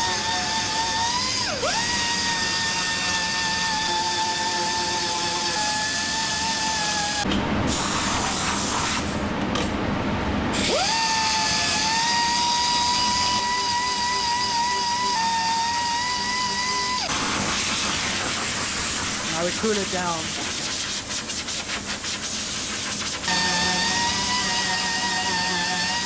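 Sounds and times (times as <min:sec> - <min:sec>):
rotary sanding tool whining: 0:00.0 - 0:07.3, 0:10.6 - 0:18.4, 0:19.0 - 0:20.8, 0:22.8 - 0:26.0
harsh hissing grind: 0:17.1 - 0:26.0.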